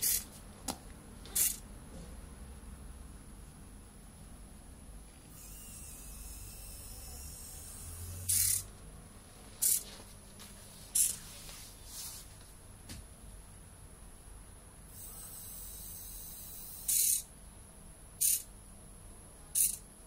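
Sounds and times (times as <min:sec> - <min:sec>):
robot motors whirring: 0:01.4 - 0:01.6, 0:05.3 - 0:08.7, 0:09.6 - 0:09.8, 0:19.6 - 0:19.8.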